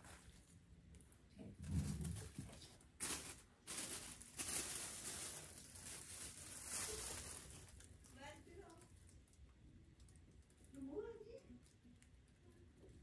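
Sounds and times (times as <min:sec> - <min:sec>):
plastic plant pots rustling: 0:00.0 - 0:09.3.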